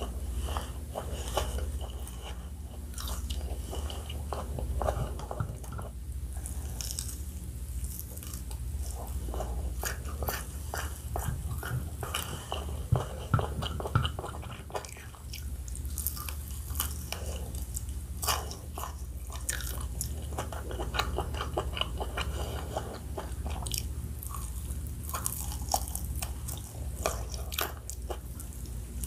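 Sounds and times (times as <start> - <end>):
crunchy bites and chewing: 6.2 - 29.0.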